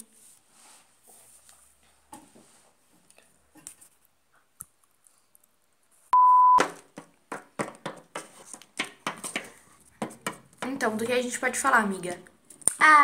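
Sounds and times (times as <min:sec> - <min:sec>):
electronic beep: 0:06.2 - 0:06.6.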